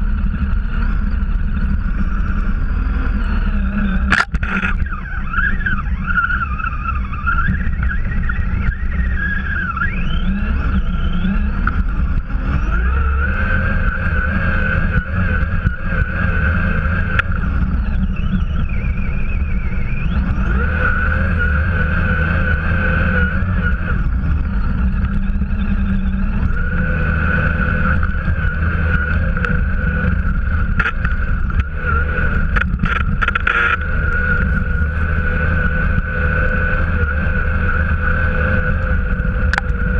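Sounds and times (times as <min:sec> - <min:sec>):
toy truck motor whining: 0:02.7 - 0:11.7
sharp clicks: 0:04.0 - 0:05.0, 0:32.5 - 0:34.2.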